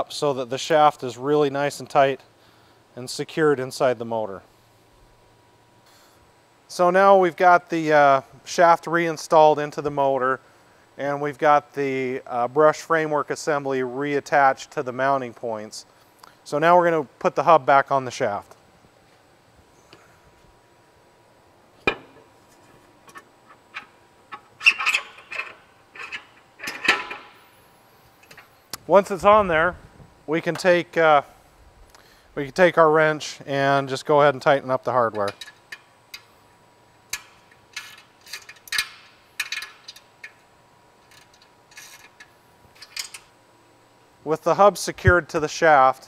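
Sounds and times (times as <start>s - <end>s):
wrench clicking on metal bolts: 23.1s - 27.3s, 37.1s - 40.4s
metal parts clinking and rattling: 23.1s - 27.4s, 41.0s - 43.3s.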